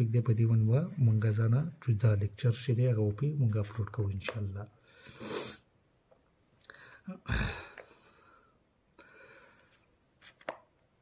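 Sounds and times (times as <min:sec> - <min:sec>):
man breathing: 0:06.6 - 0:09.9.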